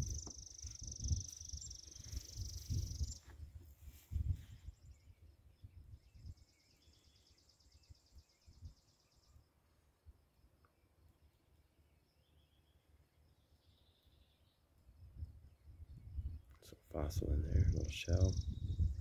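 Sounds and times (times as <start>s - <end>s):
low rumbles on microphone: 0.0s - 6.4s, 15.1s - 19.0s
faint chirps: 0.0s - 19.0s.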